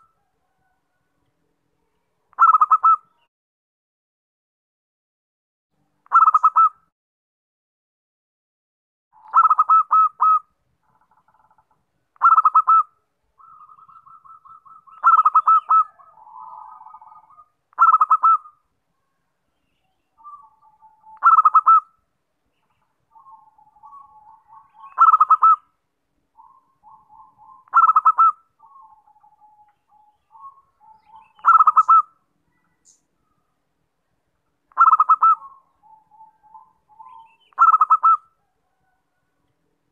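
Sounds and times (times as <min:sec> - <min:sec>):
dove soft trilling coos: 0:00.0 - 0:01.2, 0:02.3 - 0:03.2, 0:06.1 - 0:06.8, 0:09.2 - 0:11.6, 0:12.2 - 0:19.2, 0:20.1 - 0:21.9, 0:23.1 - 0:25.7, 0:26.4 - 0:33.5, 0:34.7 - 0:39.5
dove rapid staccato cooing: 0:02.4 - 0:03.0, 0:09.2 - 0:10.4, 0:12.2 - 0:18.5, 0:21.0 - 0:21.8, 0:23.2 - 0:25.6, 0:26.4 - 0:29.4, 0:30.3 - 0:32.1, 0:34.7 - 0:38.9.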